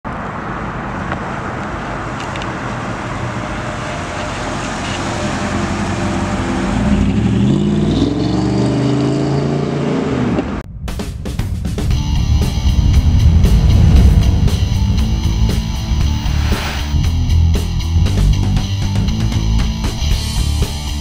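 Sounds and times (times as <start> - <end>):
rushing noise: 10.7 - 18.5
car driving past: 11.7 - 17.1.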